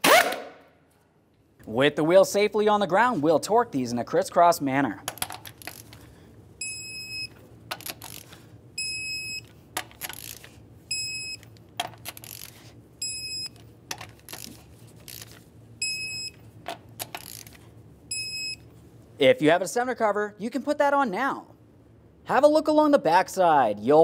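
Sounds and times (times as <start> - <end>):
torque wrench short high beeps: 10.9 - 11.4, 13.0 - 13.6, 15.8 - 16.4.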